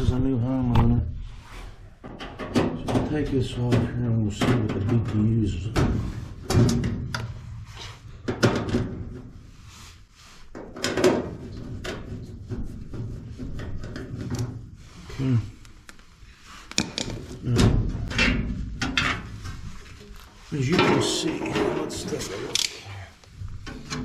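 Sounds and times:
metal panel clanks and scrapes: 0:20.6 - 0:22.7.

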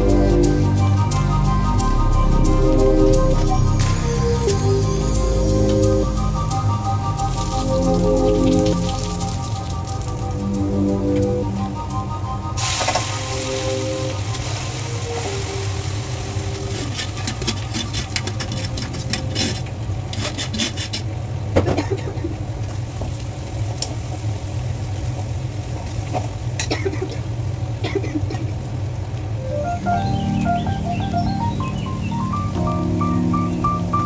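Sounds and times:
steady low hum: 0:00.0 - 0:34.0
pots and utensils clattering: 0:15.1 - 0:22.2.

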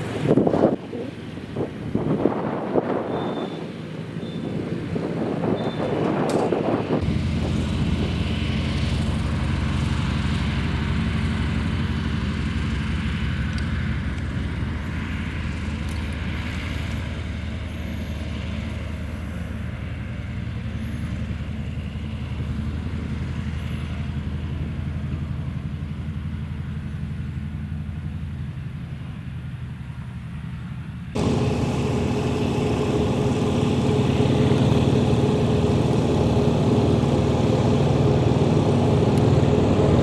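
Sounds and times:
propeller plane engine running: 0:00.0 - 0:40.0.

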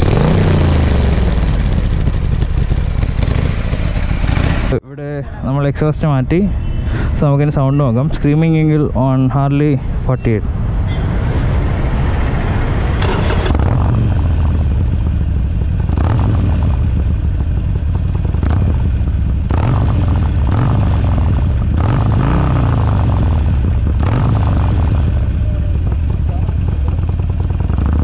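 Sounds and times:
motorcycle engine idling and revving: 0:00.0 - 0:04.8, 0:10.4 - 0:28.0.

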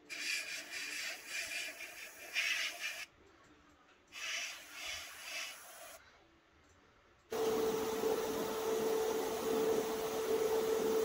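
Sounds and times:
airbrush spraying hiss: 0:00.1 - 0:03.1, 0:04.2 - 0:06.0.

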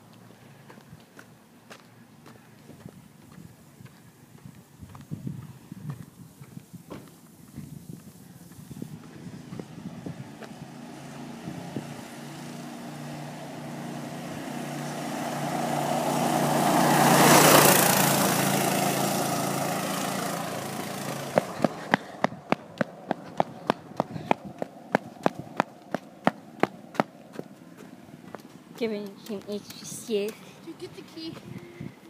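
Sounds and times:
footsteps on pavement: 0:00.0 - 0:10.7, 0:21.3 - 0:31.8
go-kart engine driving by: 0:08.9 - 0:28.2.

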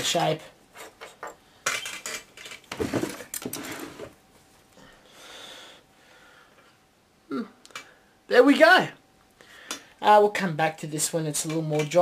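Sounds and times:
metal tools clinking and rattling: 0:00.8 - 0:03.6.

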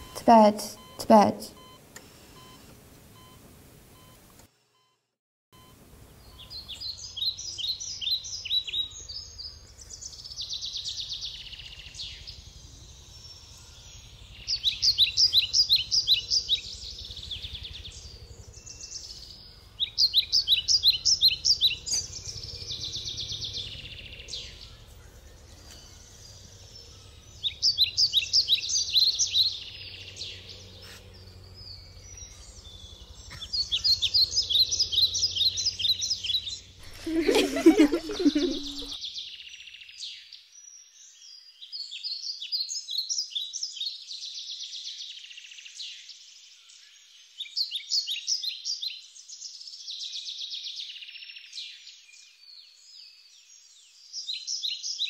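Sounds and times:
songbirds singing: 0:05.6 - 0:55.0
low outdoor rumble: 0:11.1 - 0:39.0.

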